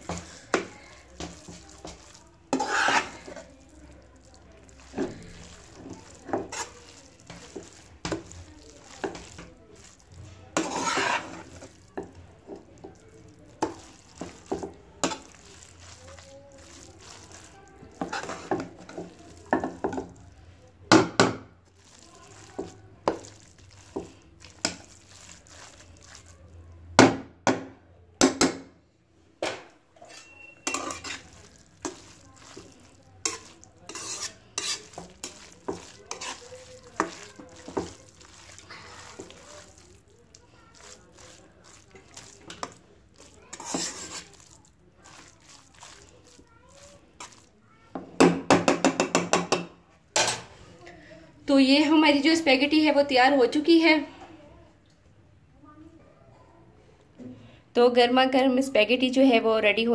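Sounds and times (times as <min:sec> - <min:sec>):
spatula scraping and knocking wok: 0:00.0 - 0:20.3, 0:20.9 - 0:26.4, 0:29.4 - 0:50.5.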